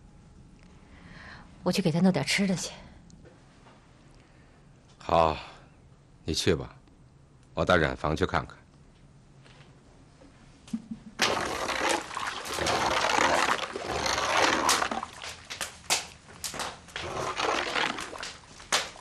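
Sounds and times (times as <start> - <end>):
water rushing: 11.2 - 15.5, 17.0 - 19.0
water splashes and knocks: 11.2 - 19.0.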